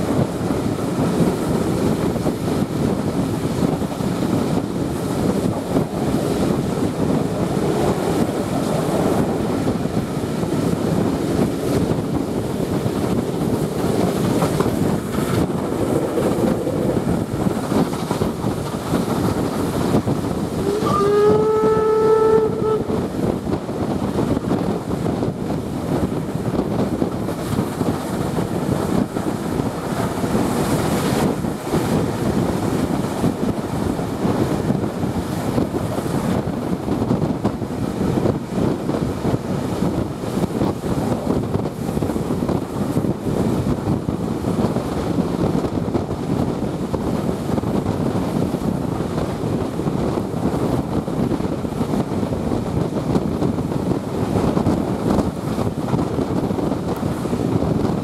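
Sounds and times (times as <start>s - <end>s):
train rolling and wind noise: 0.0s - 58.0s
steam locomotive whistle: 20.6s - 23.1s.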